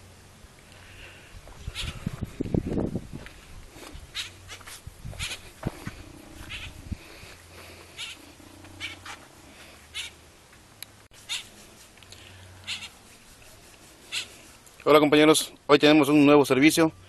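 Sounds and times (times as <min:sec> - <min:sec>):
short high-pitched animal calls: 0:06.2 - 0:06.8, 0:08.0 - 0:09.2, 0:09.9 - 0:10.2, 0:11.2 - 0:11.6, 0:12.6 - 0:13.1, 0:14.1 - 0:14.5.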